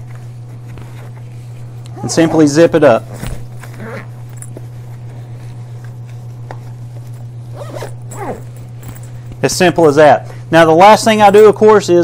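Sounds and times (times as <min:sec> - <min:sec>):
steady low hum: 0:00.0 - 0:12.0
zipper being pulled closed: 0:01.8 - 0:02.5, 0:03.1 - 0:04.4, 0:07.5 - 0:08.6.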